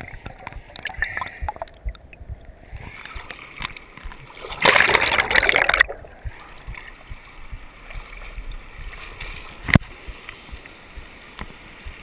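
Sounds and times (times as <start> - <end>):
low thuds: 0.0 - 3.3, 5.8 - 9.0
muffled river rapids: 0.0 - 12.0.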